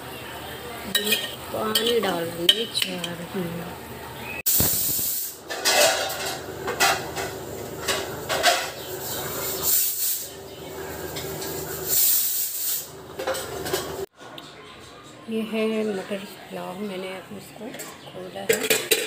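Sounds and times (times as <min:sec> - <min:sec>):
steel dishes clattering: 0:00.9 - 0:03.1, 0:05.5 - 0:08.9, 0:18.5 - 0:19.0
short bursts of hiss: 0:04.5 - 0:05.4, 0:11.8 - 0:12.9.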